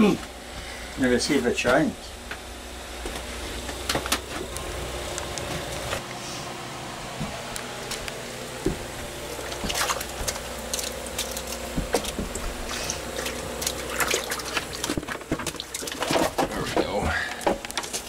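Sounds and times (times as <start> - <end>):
mechanical hum: 0.0 - 18.0
water splashing in ice hole: 9.4 - 16.2.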